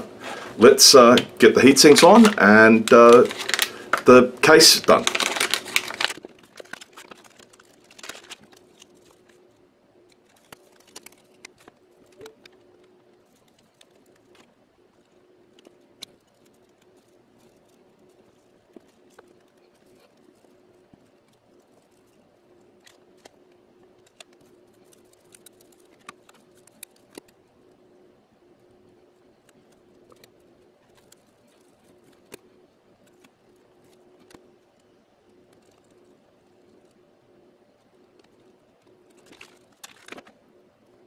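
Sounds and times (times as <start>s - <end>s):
faint steady hum: 0.0s - 41.0s
plastic bag rustling: 1.4s - 9.5s.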